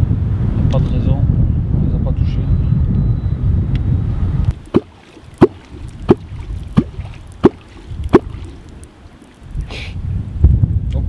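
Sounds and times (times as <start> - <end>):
watery plops with ring: 4.6 - 9.4.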